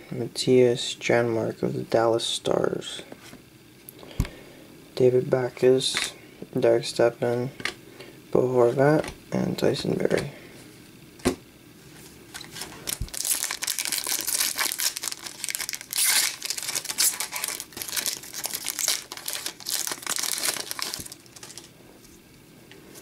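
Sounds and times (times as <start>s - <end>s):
foil wrapper tearing and crinkling: 12.4s - 21.7s.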